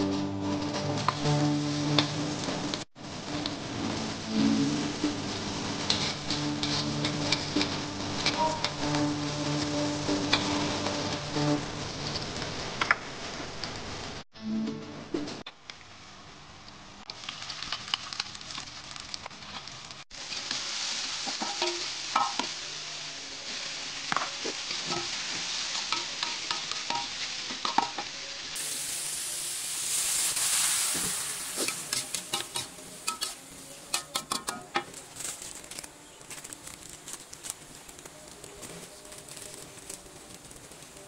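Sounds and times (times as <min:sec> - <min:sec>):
food sizzling in a wok: 0:00.0 - 0:14.2, 0:15.8 - 0:41.0
metal spatula scraping a wok: 0:29.9 - 0:35.8.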